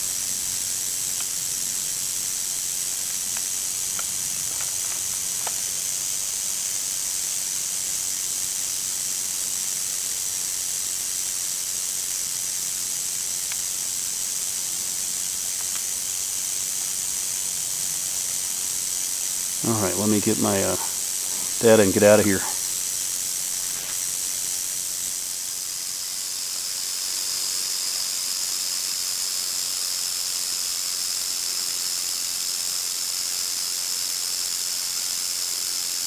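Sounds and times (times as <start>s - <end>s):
rattlesnake rattling: 0.0s - 36.0s.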